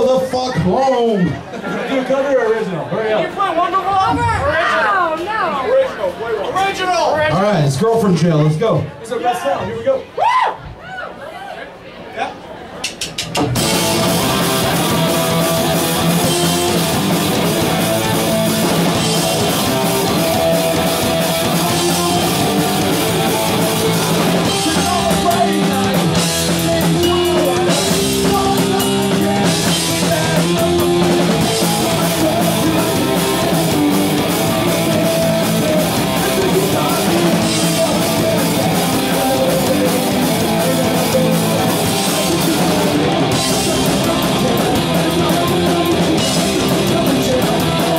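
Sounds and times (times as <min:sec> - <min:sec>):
punk rock band playing live: 0:12.9 - 0:47.9.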